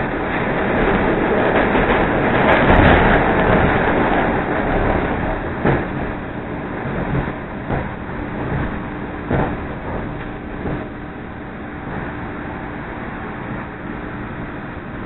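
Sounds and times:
train wheels rumbling on track: 0.0 - 15.0
sharp knocks: 5.0 - 6.2, 6.8 - 11.0, 11.8 - 12.3.

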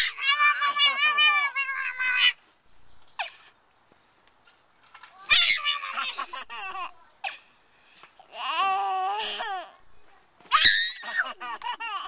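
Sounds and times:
baby squealing: 0.0 - 2.4, 5.2 - 6.9, 10.5 - 12.0
baby laughing: 5.4 - 7.0, 11.0 - 12.0.

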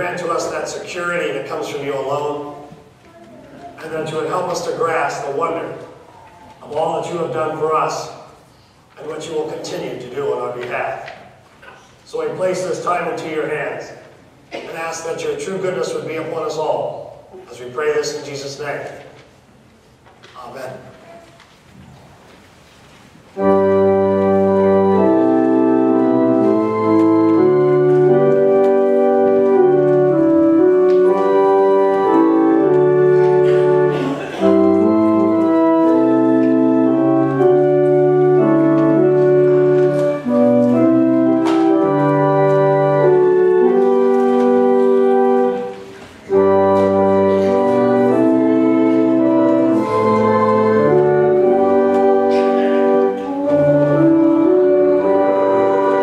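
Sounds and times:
church organ chords: 0.0 - 2.8, 3.8 - 6.1, 6.7 - 8.4, 12.1 - 14.1, 23.3 - 56.0.

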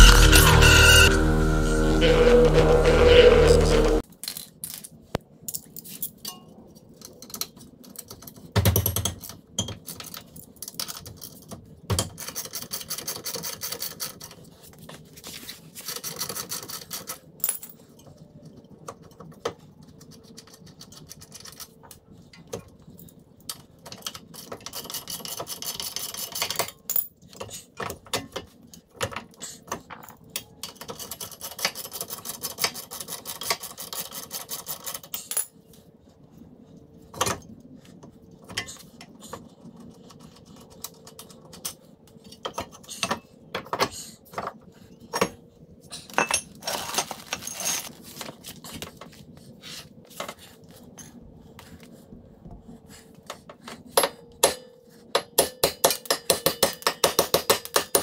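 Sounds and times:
metal parts clinking and scraping: 46.1 - 48.1.

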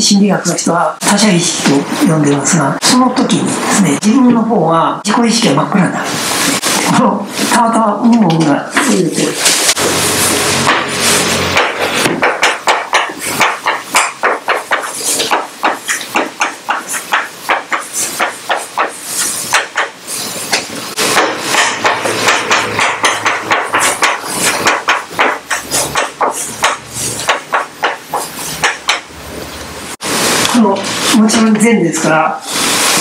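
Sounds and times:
chalk writing on a blackboard: 10.6 - 29.1.

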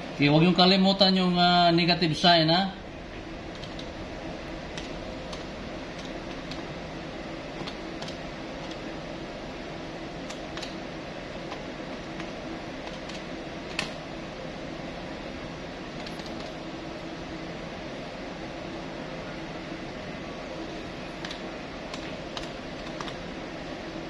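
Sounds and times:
steady machine hum: 0.0 - 24.0
calculator keys clicking: 3.5 - 3.9, 7.6 - 8.8, 11.5 - 14.0, 21.2 - 23.2.

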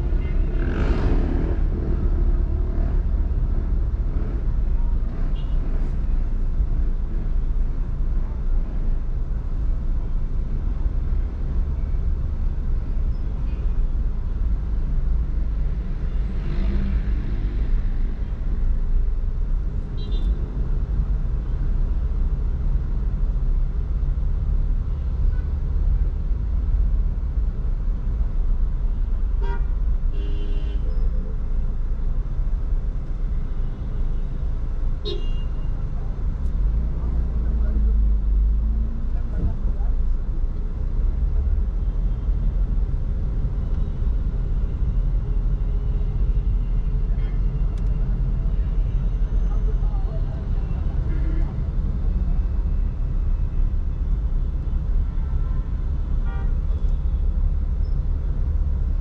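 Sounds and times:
road traffic rumble: 0.0 - 59.0.

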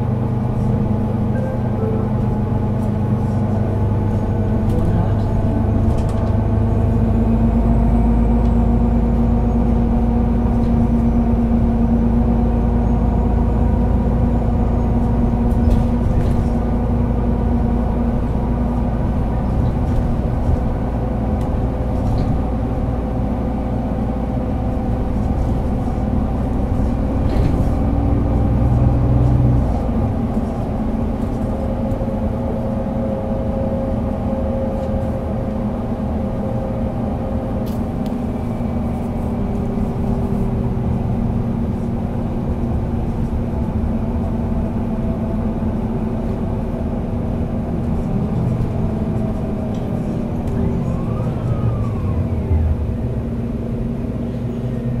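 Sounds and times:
bus engine drone: 0.0 - 55.0.

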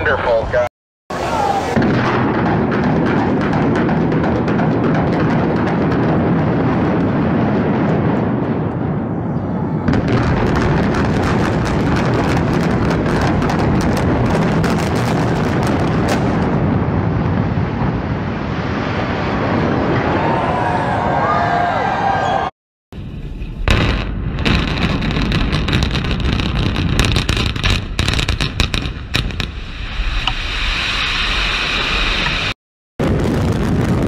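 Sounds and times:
sharp cracks and bangs: 1.8 - 8.9, 9.9 - 18.2, 23.5 - 30.4
heavy rumble of building collapsing: 1.8 - 29.6.

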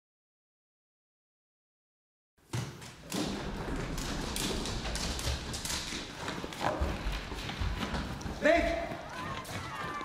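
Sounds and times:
running footsteps on hard floor: 2.4 - 10.0.

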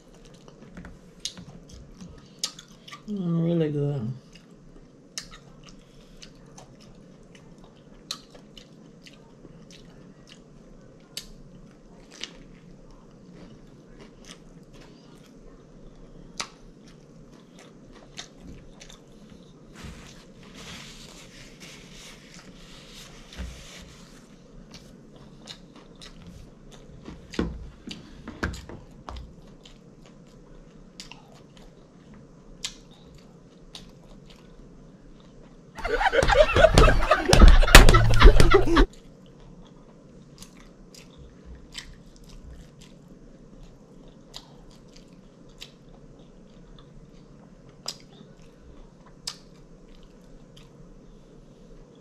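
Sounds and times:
chewing with crunches: 0.0 - 3.1, 4.2 - 35.7, 38.5 - 52.0.

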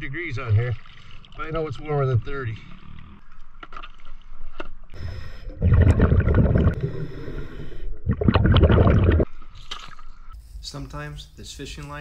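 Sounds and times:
exhaled bubbles bursting: 5.4 - 7.0, 7.9 - 9.3
regulator hiss: 10.4 - 12.0.

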